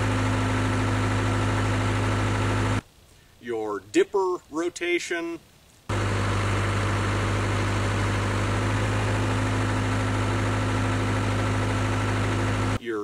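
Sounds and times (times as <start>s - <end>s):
diesel engine humming: 0.0s - 2.8s, 5.9s - 12.8s.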